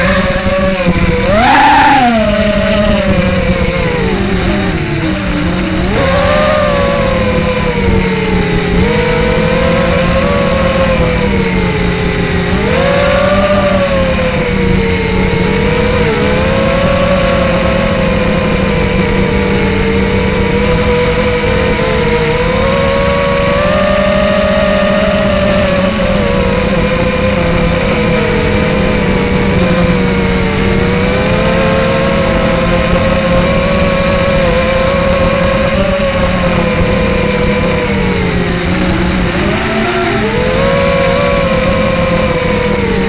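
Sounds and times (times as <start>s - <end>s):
quadcopter motors whining: 0.0s - 43.0s.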